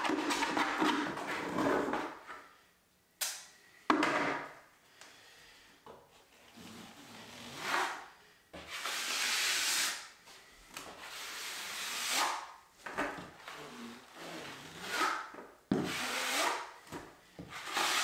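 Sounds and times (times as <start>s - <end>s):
drywall knife scraping plaster: 0.0s - 2.2s, 6.5s - 10.1s, 13.5s - 16.8s, 17.4s - 18.0s.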